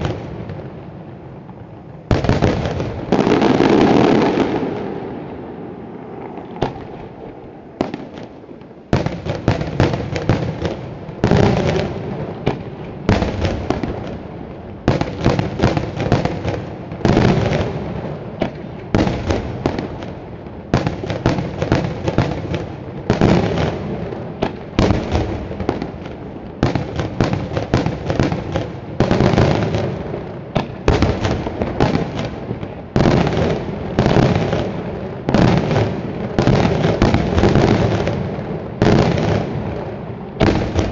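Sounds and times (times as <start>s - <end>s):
fireworks bangs and crackling: 0.0s - 40.9s.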